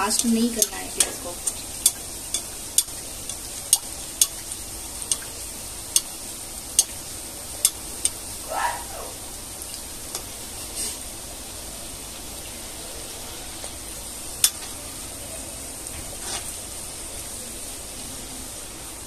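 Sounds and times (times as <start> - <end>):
oil popping and crackling: 0.0 - 8.4
oil sizzling: 0.0 - 19.0.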